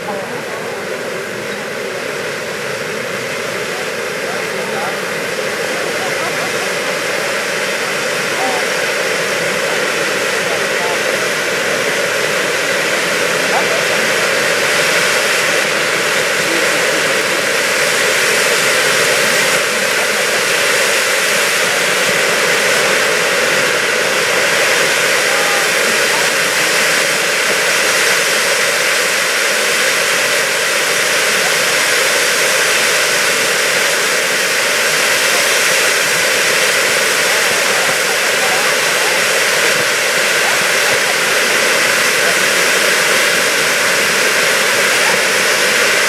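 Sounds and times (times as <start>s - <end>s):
firework fountains hissing: 0.0s - 46.0s.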